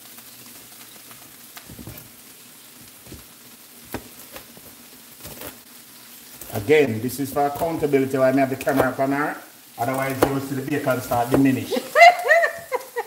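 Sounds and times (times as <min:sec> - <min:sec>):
food sizzling in a pan: 0:00.0 - 0:13.0
knife chopping on plastic board: 0:03.9 - 0:05.6, 0:07.3 - 0:07.9, 0:08.5 - 0:09.0, 0:09.8 - 0:11.6.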